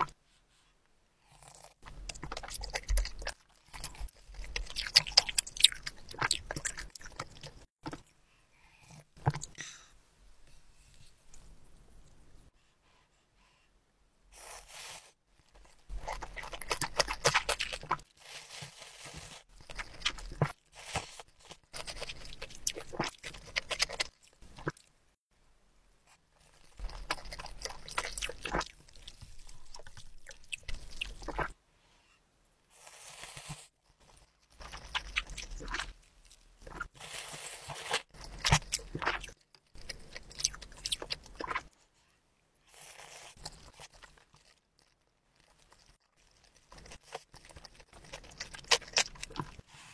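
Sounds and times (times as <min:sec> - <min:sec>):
noodles slurped and chewed: 0:01.3 - 0:08.1, 0:15.5 - 0:24.9, 0:26.4 - 0:31.6, 0:32.8 - 0:41.8, 0:42.7 - 0:49.9.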